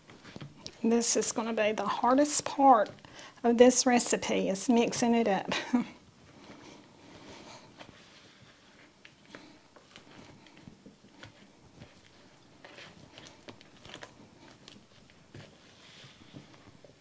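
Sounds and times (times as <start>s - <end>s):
stirring thick mixture in bowl: 0.0s - 5.2s, 6.0s - 17.0s.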